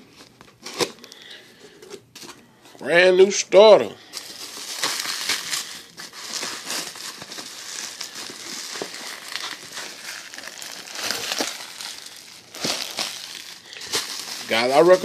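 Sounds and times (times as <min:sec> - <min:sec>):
cardboard box rustling and crinkling: 0:04.2 - 0:15.0.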